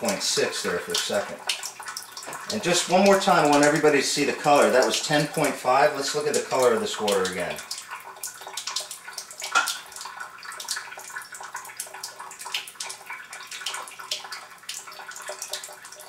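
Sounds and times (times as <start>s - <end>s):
water splashing into sink: 0.0s - 16.0s.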